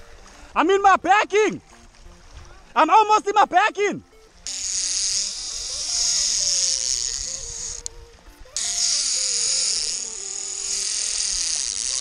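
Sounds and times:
background music: 0:00.0 - 0:11.9
fishing reel drag buzzing: 0:04.1 - 0:12.0.

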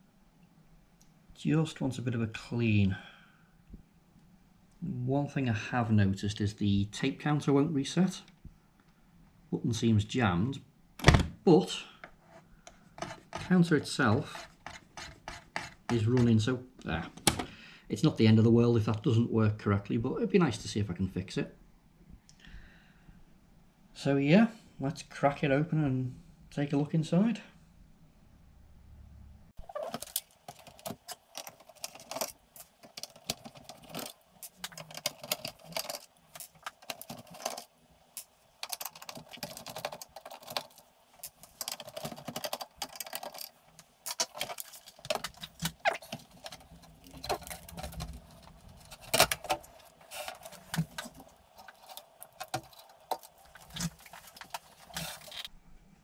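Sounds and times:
plastic case clicks and rattles: 0:29.7 - 0:37.7, 0:38.6 - 0:55.5.

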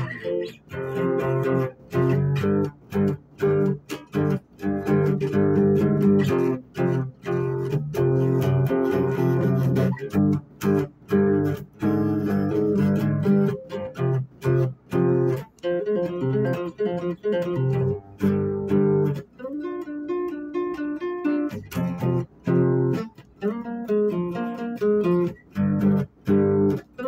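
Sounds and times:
guitar strummed chords: 0:00.0 - 0:27.0.

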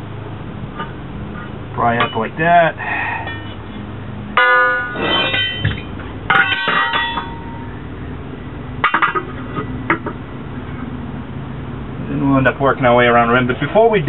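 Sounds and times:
steel tire irons clanking on rim: 0:00.7 - 0:08.0, 0:08.8 - 0:10.9.

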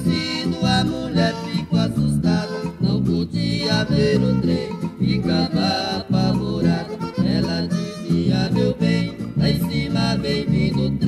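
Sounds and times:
accordion: 0:00.0 - 0:11.0
plucked guitars: 0:00.0 - 0:11.0.

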